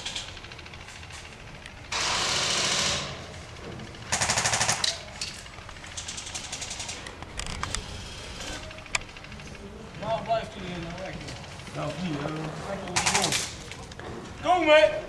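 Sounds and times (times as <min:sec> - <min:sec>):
airsoft guns firing bursts: 0:01.8 - 0:07.3, 0:10.0 - 0:13.7.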